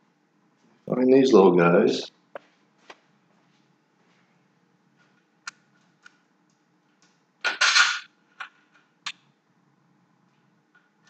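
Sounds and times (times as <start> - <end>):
metal hardware clinking rattle: 7.5 - 8.1.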